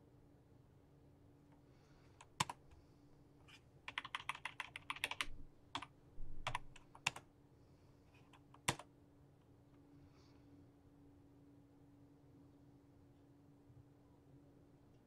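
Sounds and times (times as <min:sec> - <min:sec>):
faint steady hum: 0:00.0 - 0:15.0
keyboard keystrokes: 0:03.9 - 0:07.2, 0:08.4 - 0:08.8.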